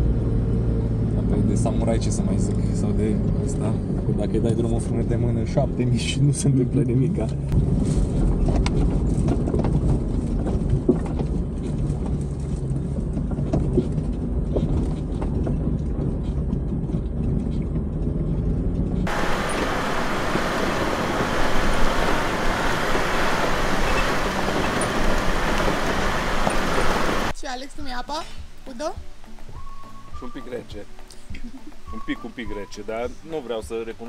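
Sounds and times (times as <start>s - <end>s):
vehicle engine droning: 0.0s - 27.4s
tyres on gravel and wind rushing: 7.5s - 27.6s.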